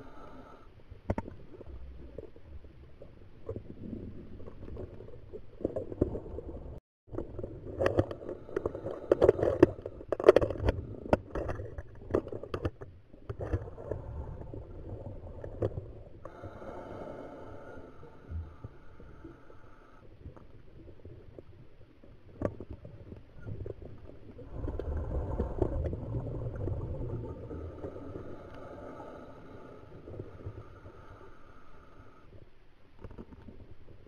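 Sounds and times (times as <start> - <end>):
regulator bubbles gurgling underwater: 20.1 - 31.1.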